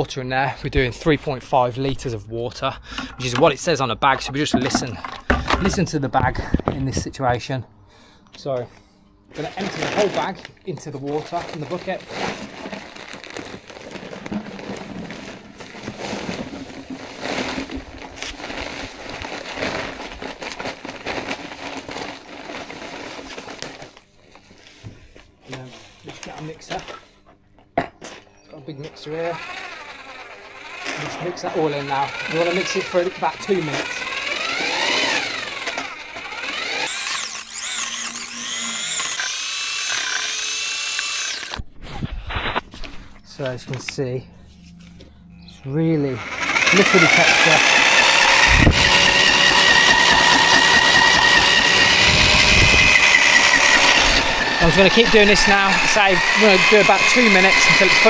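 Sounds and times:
sack rustling and crinkling: 9.4s - 24.6s
paddle mixer motor whining: 11.1s - 24.0s, 28.8s - 41.6s, 44.8s - 58.0s
powder pouring: 11.2s - 23.7s.

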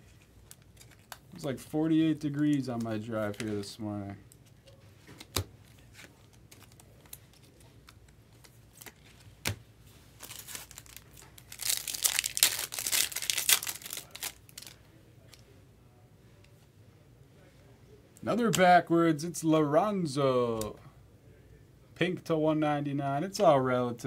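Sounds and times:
foil wrapper tearing and crinkling: 10.2s - 14.8s.

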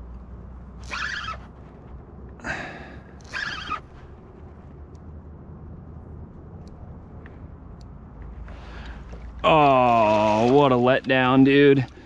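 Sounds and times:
fishing reel drag ripping: 0.8s - 1.4s, 3.2s - 3.8s.

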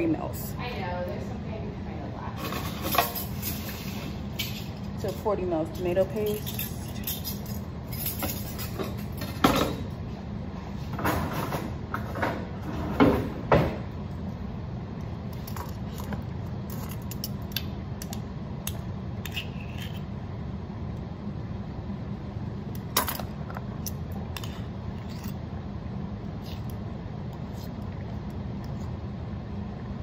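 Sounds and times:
metal measuring spoons jangling: 5.8s - 8.8s.

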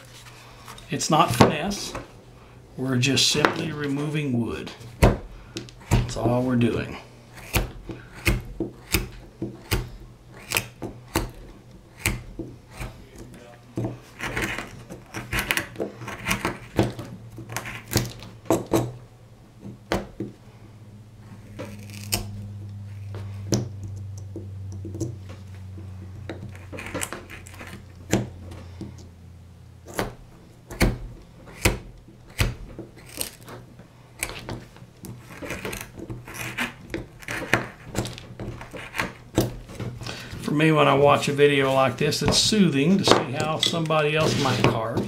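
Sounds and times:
carving tool cutting wood: 5.0s - 19.0s, 21.3s - 24.3s, 26.1s - 28.3s, 29.8s - 45.0s.

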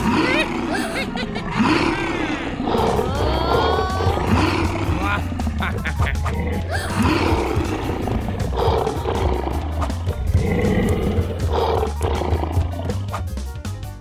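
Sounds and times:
dinosaur roars: 0.0s - 13.1s
music with steady beat: 3.9s - 14.0s.

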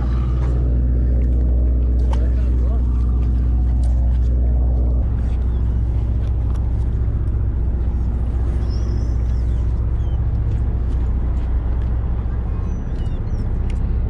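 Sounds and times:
boat engine droning: 0.0s - 14.0s
faint seabird calls: 5.1s - 6.6s, 7.8s - 14.0s.

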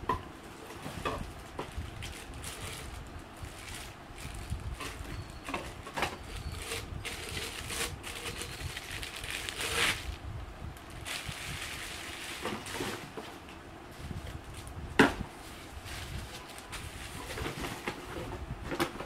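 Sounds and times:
plastic packaging crinkling: 1.2s - 10.2s, 10.8s - 12.8s.

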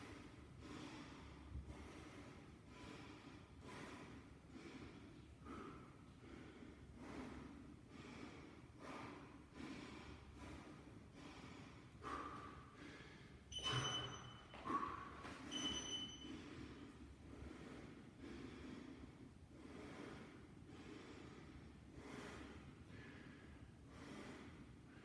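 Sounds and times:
man breathing hard: 0.0s - 15.5s, 16.2s - 25.0s
short electronic beep: 13.5s - 14.6s, 15.5s - 16.3s.

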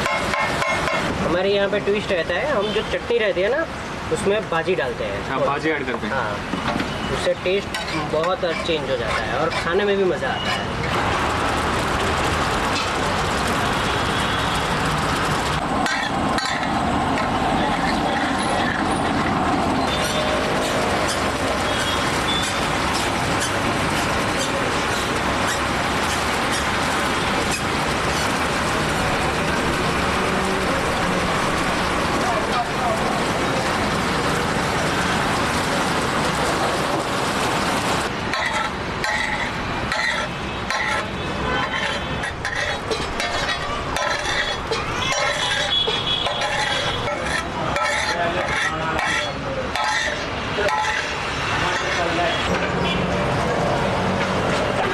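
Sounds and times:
gravy cooking on iron griddle: 0.0s - 52.5s
metal spatula scraping griddle: 7.5s - 10.9s, 15.8s - 19.1s, 38.3s - 52.4s
food sizzling on iron griddle: 41.7s - 51.2s.

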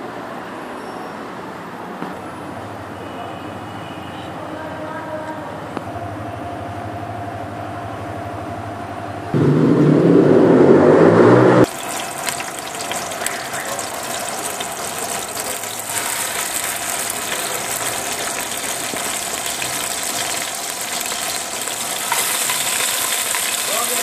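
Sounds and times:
chicken sizzling in hot oil: 11.6s - 24.0s.

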